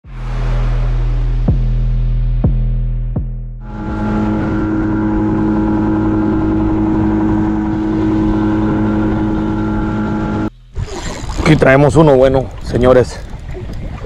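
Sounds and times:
water and hull noise: 0:00.0 - 0:02.6, 0:03.6 - 0:14.0
outboard motor droning: 0:03.6 - 0:14.0.

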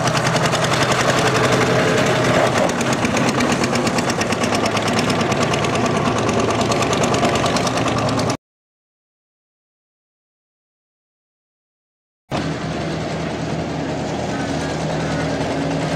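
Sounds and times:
diesel engine knocking: 0:00.0 - 0:08.4, 0:12.3 - 0:15.9.

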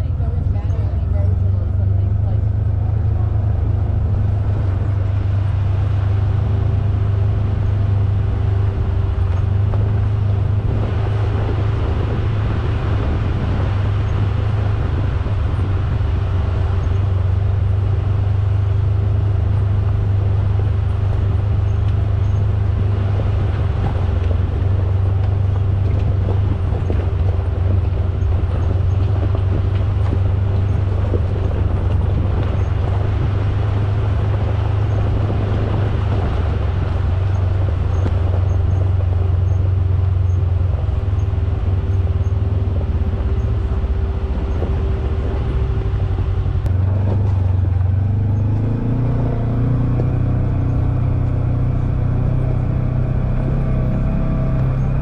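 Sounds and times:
vehicle engine drone: 0:00.0 - 0:55.0.

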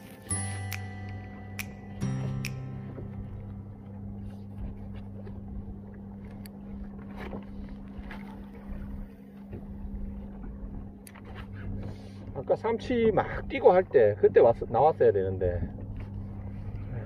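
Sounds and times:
steady low hum: 0:00.0 - 0:17.0
wind: 0:00.0 - 0:17.0
waves slapping plastic kayak hull: 0:04.3 - 0:11.8.

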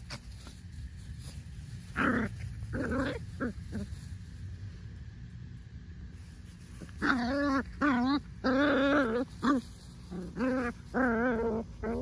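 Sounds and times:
puppy whiny cries: 0:07.0 - 0:12.0.

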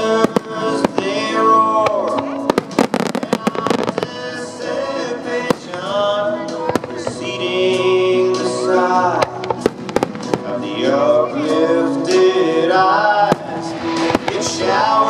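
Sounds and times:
crackling firework bangs: 0:00.0 - 0:04.4, 0:05.4 - 0:07.3, 0:09.2 - 0:10.7, 0:13.3 - 0:14.6
fireworks bangs: 0:00.0 - 0:11.6, 0:13.0 - 0:15.0
loud music with singer: 0:00.0 - 0:15.0.

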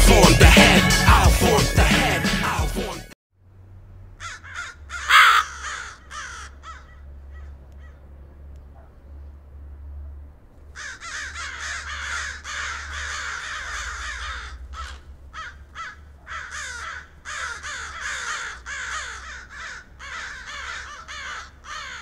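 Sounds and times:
crows cawing: 0:04.2 - 0:08.1, 0:10.8 - 0:22.0.

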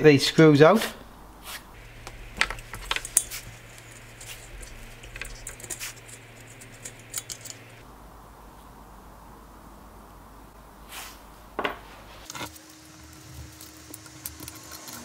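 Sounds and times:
allen key clicking on screws: 0:02.0 - 0:07.8.

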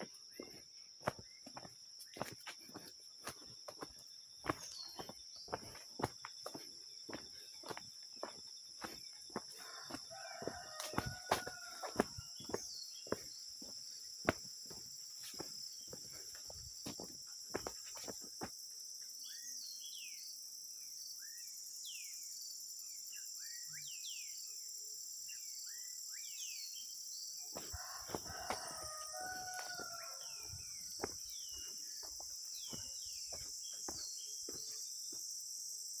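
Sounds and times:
footsteps on dirt path: 0:00.0 - 0:18.6, 0:27.5 - 0:35.4
rooster crowing: 0:09.4 - 0:12.6, 0:27.6 - 0:31.2
high insect buzz: 0:27.6 - 0:36.0.

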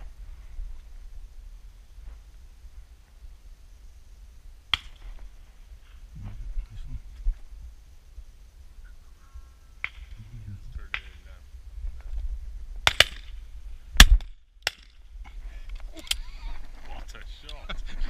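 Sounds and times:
wind rumble on microphone: 0:05.2 - 0:14.4
shotgun shots: 0:12.8 - 0:13.3, 0:14.0 - 0:14.9.

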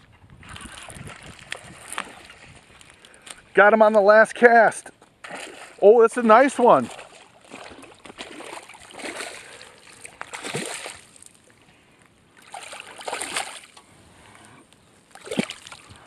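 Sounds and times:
fish thrashing and splashing in water: 0:00.4 - 0:03.1, 0:05.2 - 0:05.9, 0:06.6 - 0:11.5, 0:12.4 - 0:13.8, 0:15.1 - 0:15.9.

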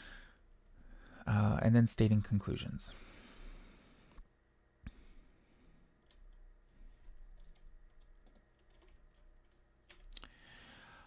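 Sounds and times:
computer keyboard typing: 0:07.2 - 0:10.2.

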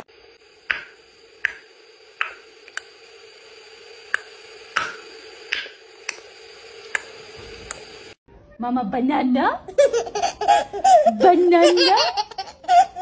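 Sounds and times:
faint steady hum: 0:00.0 - 0:08.2.

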